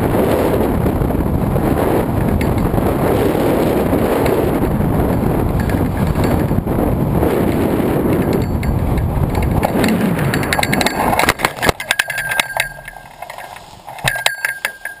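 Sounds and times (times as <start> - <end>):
wind rushing over camera: 0.0 - 15.0
scattered clicks: 7.4 - 15.0.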